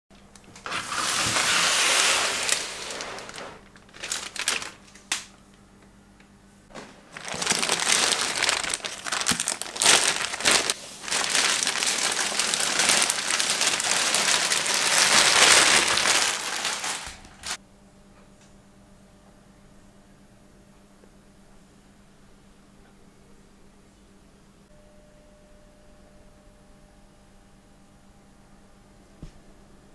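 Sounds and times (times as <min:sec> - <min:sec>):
plastic bag crinkling: 0:00.5 - 0:05.2, 0:06.8 - 0:17.6.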